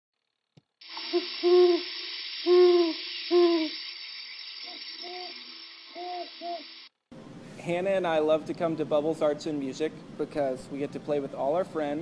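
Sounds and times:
steady high hiss: 0:00.8 - 0:07.0
owl hooting: 0:01.0 - 0:06.9.

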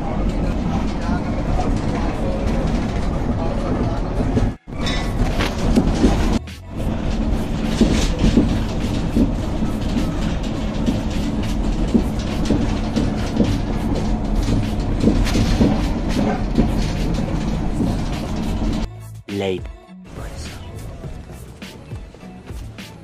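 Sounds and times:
road and engine drone: 0:00.0 - 0:23.0
loose fittings rattling: 0:04.7 - 0:18.9.

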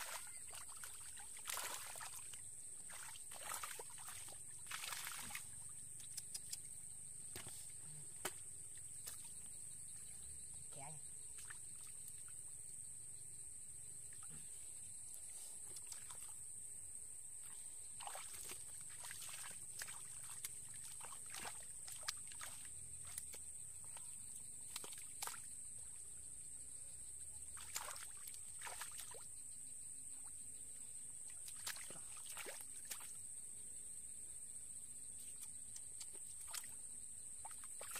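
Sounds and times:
splashes of muddy water: 0:00.0 - 0:06.5, 0:07.3 - 0:09.5, 0:15.6 - 0:16.4, 0:17.4 - 0:25.6, 0:27.5 - 0:29.3, 0:31.3 - 0:33.2, 0:35.2 - 0:37.9.

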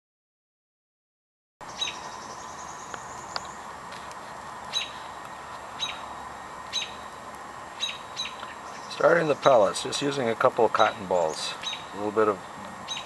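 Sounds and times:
small bird chirping: 0:01.6 - 0:03.7, 0:04.7 - 0:07.1, 0:07.7 - 0:09.7, 0:10.8 - 0:13.0
background hiss: 0:01.6 - 0:13.0.

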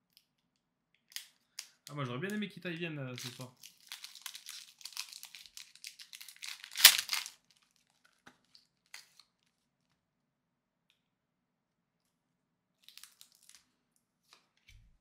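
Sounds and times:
foil pack tearing: 0:03.2 - 0:07.7
foil wrapper crinkling: 0:03.2 - 0:09.5, 0:12.8 - 0:13.6.

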